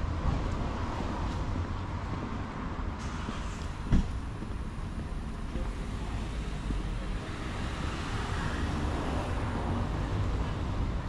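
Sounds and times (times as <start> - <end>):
traffic rumble: 0.0 - 11.0.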